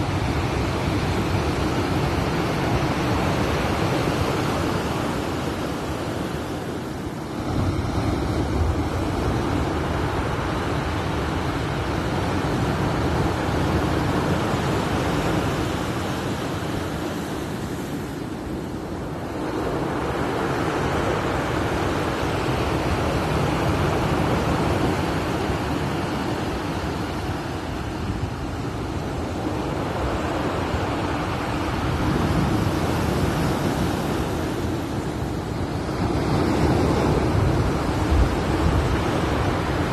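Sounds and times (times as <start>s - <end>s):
wind buffeting microphone: 18.7s - 39.9s.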